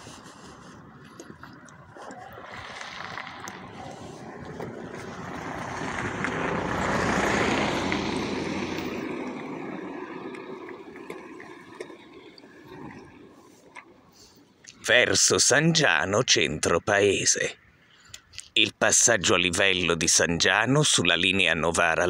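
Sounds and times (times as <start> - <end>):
footsteps on asphalt: 0.0 - 9.6
vehicle passing by: 1.8 - 13.6.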